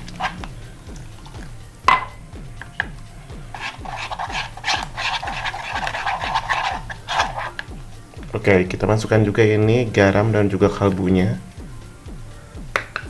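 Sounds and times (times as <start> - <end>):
spoon scraping batter in a bowl: 0.0 - 0.6, 3.5 - 7.7.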